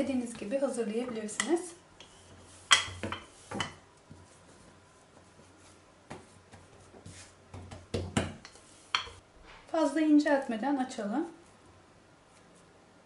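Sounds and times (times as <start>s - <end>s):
rolling pin rolling dough: 0.0s - 9.2s.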